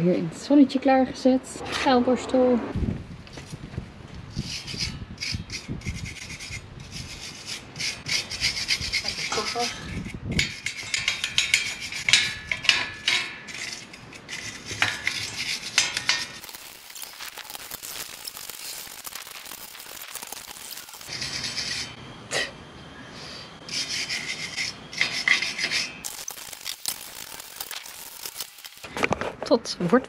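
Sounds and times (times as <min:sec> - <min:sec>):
wire brush scrubbing metal: 0:04.4 - 0:22.0, 0:23.7 - 0:28.9.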